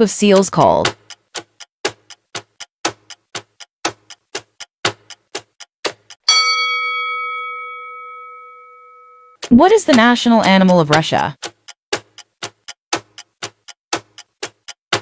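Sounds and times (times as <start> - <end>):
timer ticking: 0.0 - 15.0
bell-like chime: 6.3 - 9.4.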